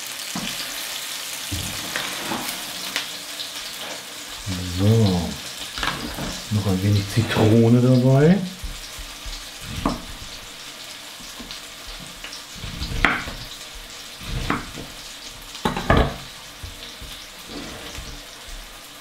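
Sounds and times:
chicken sizzling in a pan: 0:00.0 - 0:19.0
knife knocking on chopping board: 0:08.6 - 0:10.3, 0:15.6 - 0:17.2.

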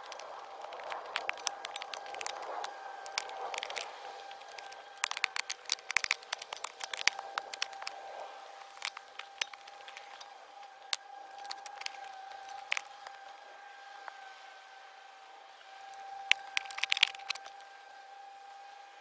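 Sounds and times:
spade clinking and scraping stones: 0:08.6 - 0:10.2, 0:11.3 - 0:13.0.

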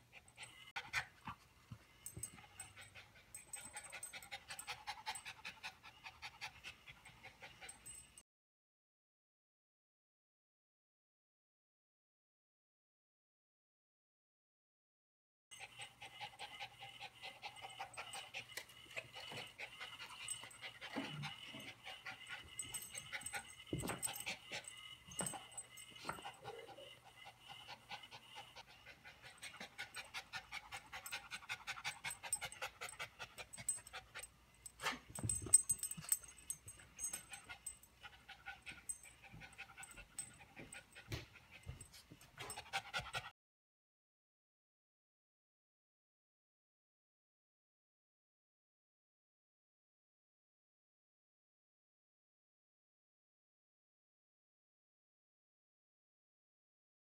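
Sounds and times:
small dog panting: 0:00.0 - 0:08.2, 0:15.6 - 0:43.3.

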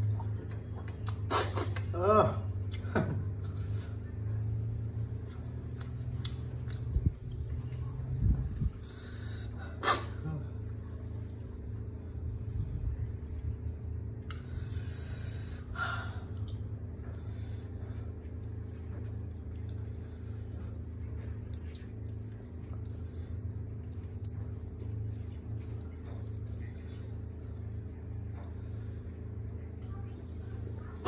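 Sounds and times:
steady low hum: 0:00.0 - 0:31.0
loud hissing breaths: 0:08.8 - 0:10.2, 0:14.4 - 0:16.3
wet ticks and drips: 0:18.3 - 0:28.0.

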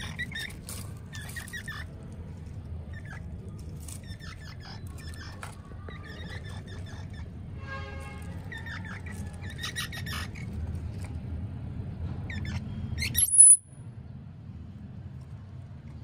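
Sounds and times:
baby squirrels squeaking: 0:00.0 - 0:11.2, 0:12.3 - 0:13.7
low background rumble: 0:00.0 - 0:16.0.

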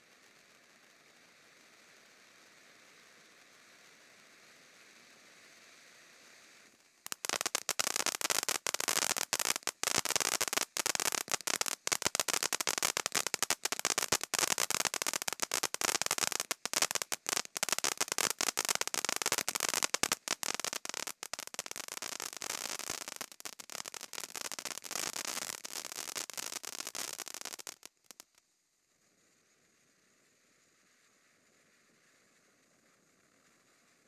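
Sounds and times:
fireworks fountain crackling: 0:00.0 - 0:28.4
rapid sharp pops: 0:07.0 - 0:28.4.

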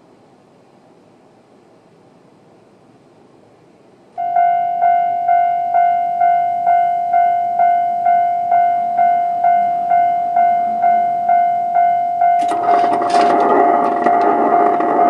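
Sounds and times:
level crossing warning bell: 0:04.2 - 0:15.0.

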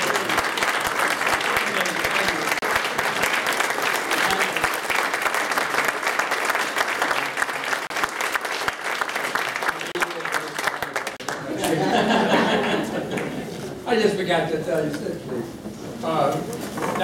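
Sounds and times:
audience applause: 0:00.0 - 0:13.4.

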